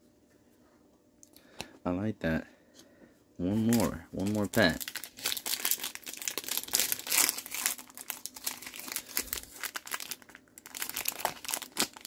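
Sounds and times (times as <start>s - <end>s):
foil wrapper crackling: 3.6s - 12.0s.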